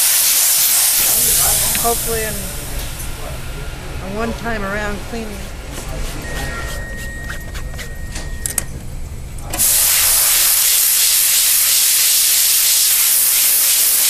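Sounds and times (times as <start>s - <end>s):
steam gun hissing: 0.0s - 3.0s, 9.6s - 14.0s.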